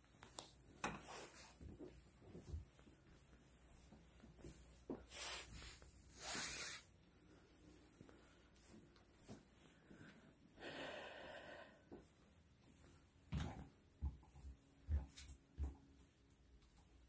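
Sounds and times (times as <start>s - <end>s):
footsteps on hard floor: 0.1s - 5.6s, 7.9s - 10.2s, 11.9s - 16.4s.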